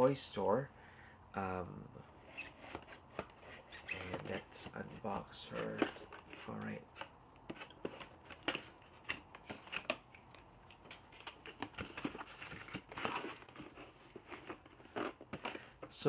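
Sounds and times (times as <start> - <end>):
cardboard box being opened: 11.1 - 15.8.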